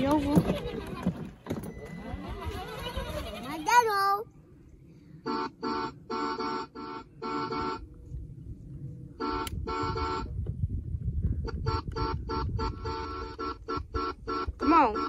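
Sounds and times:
toy car electronic horn beeps: 0:05.2 - 0:07.9, 0:09.2 - 0:10.3, 0:11.4 - 0:15.0.

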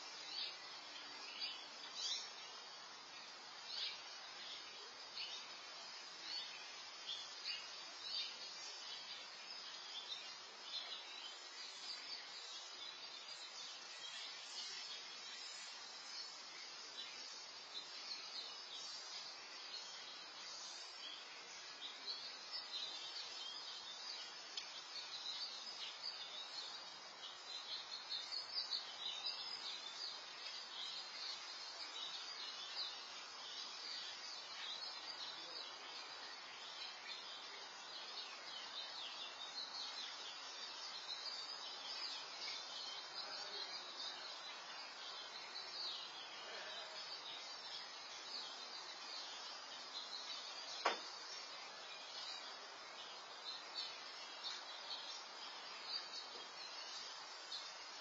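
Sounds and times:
steady hiss: 0:00.0 - 0:58.0.

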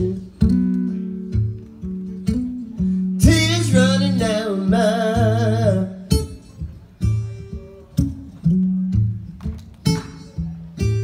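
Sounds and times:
acoustic blues guitar: 0:00.0 - 0:11.0.

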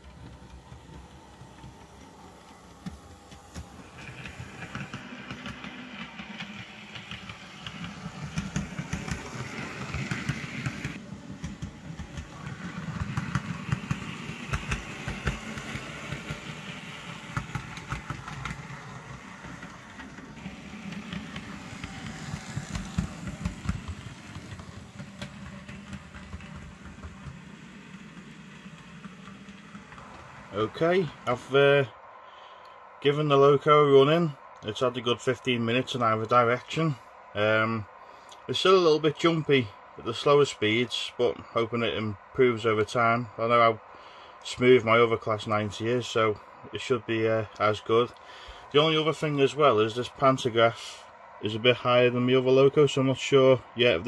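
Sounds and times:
model train wheels clicking: 0:00.0 - 0:31.8
electric locomotive hiss: 0:00.0 - 0:54.0.

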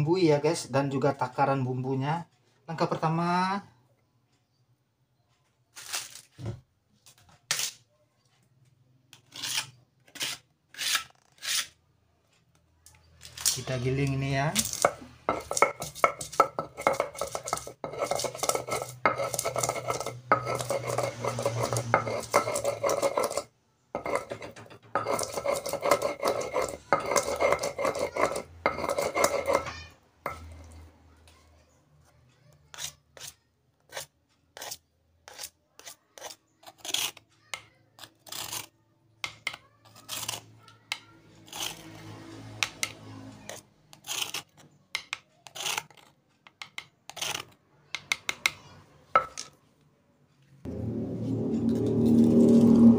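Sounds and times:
plastic spatula scraping stone: 0:09.1 - 0:11.8, 0:14.6 - 0:29.7, 0:32.7 - 0:37.2, 0:41.4 - 0:41.9, 0:42.6 - 0:44.7, 0:45.4 - 0:47.6
stone pestle grinding on stone: 0:09.2 - 0:11.8, 0:14.6 - 0:30.6, 0:32.7 - 0:37.2, 0:38.1 - 0:38.7, 0:41.4 - 0:41.9, 0:42.6 - 0:48.6
scattered taps and scrapes: 0:14.6 - 0:31.4, 0:42.6 - 0:50.5.

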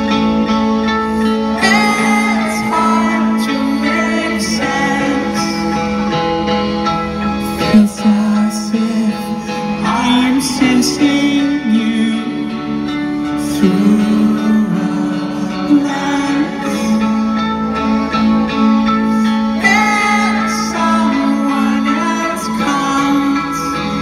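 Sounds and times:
person singing: 0:00.0 - 0:24.0
rock band playing slow song: 0:00.0 - 0:24.0.

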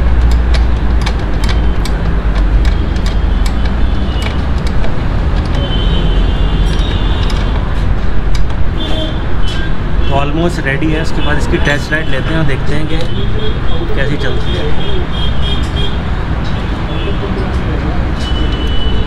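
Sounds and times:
sharp clicks and knocks: 0:00.0 - 0:09.8
motor vehicles rumbling: 0:00.0 - 0:19.0.

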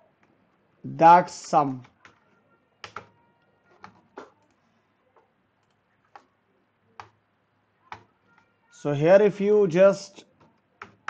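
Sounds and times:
keyboard and mouse clicks: 0:01.4 - 0:04.6, 0:05.2 - 0:06.3, 0:07.0 - 0:07.2, 0:07.9 - 0:08.5, 0:10.3 - 0:11.0.

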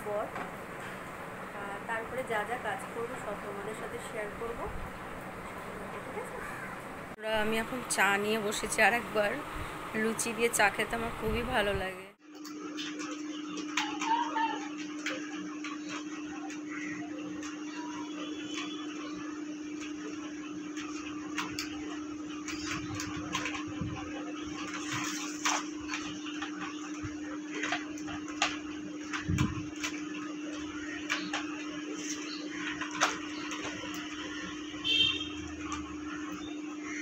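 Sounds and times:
steady low hum: 0:00.0 - 0:37.0.

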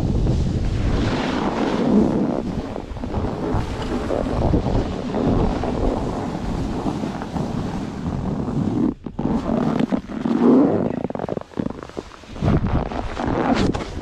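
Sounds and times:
snowboard scraping over snow: 0:00.0 - 0:14.0
wind rushing over microphone: 0:00.0 - 0:14.0.

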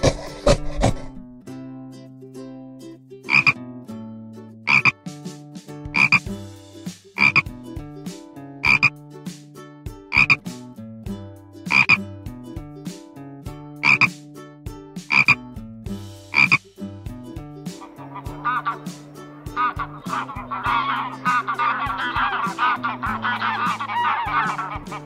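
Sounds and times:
frog croaking: 0:03.3 - 0:03.6, 0:04.7 - 0:05.0, 0:06.0 - 0:06.2, 0:07.2 - 0:07.4, 0:08.6 - 0:08.9, 0:10.1 - 0:10.4, 0:11.7 - 0:12.0, 0:13.8 - 0:14.1, 0:15.1 - 0:15.4, 0:16.3 - 0:16.6, 0:17.8 - 0:25.0.

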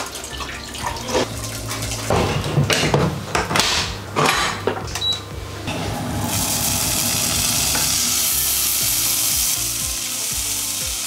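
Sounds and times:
pork sizzling in frying pan: 0:05.9 - 0:11.0.

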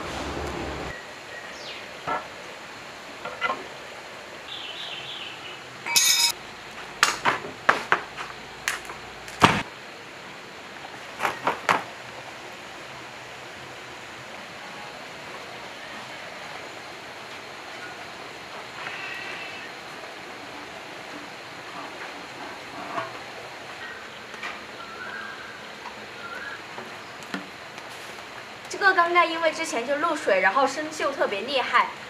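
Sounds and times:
metal tools clinking and knocking: 0:05.9 - 0:06.4.

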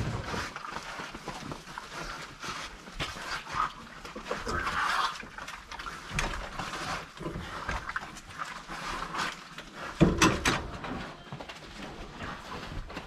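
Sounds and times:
crunching and rustling: 0:00.0 - 0:13.0
pig grunting: 0:03.2 - 0:08.0.

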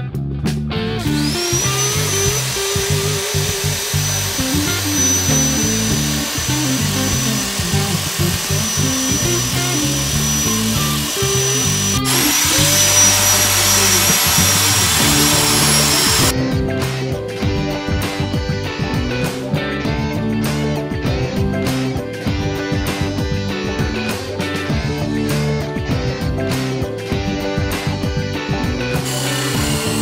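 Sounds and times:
background music with guitar: 0:00.0 - 0:30.0
wire wheel grinder scrubbing metal: 0:01.0 - 0:16.3, 0:29.1 - 0:30.0.

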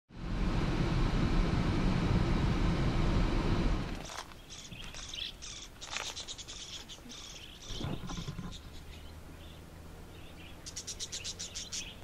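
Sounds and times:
vehicle driving rumble: 0:00.1 - 0:12.0
budgerigars chirping: 0:04.4 - 0:12.0.

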